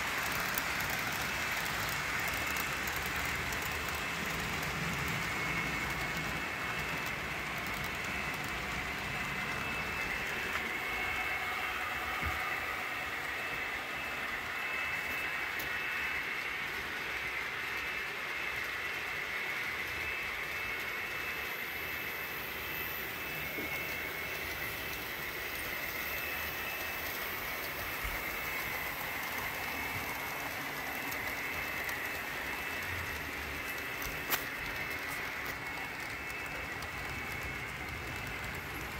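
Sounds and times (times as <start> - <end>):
model train motors whirring: 0.0 - 38.9.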